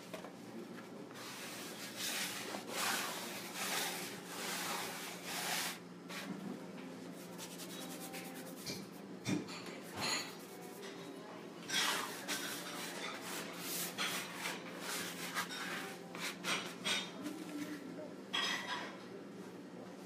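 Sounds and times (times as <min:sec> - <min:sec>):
bench scraper scraping wood: 0:01.2 - 0:06.3, 0:11.8 - 0:16.8.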